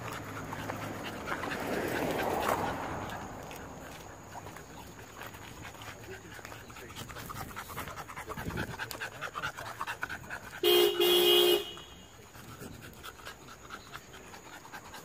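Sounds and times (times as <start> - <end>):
dog panting: 0.0 - 11.4, 12.0 - 15.0
car horn honking: 10.6 - 12.1.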